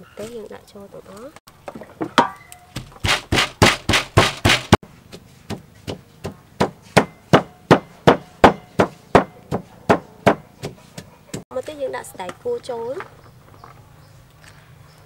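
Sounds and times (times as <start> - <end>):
pestle pounding in wooden mortar: 2.0 - 11.4.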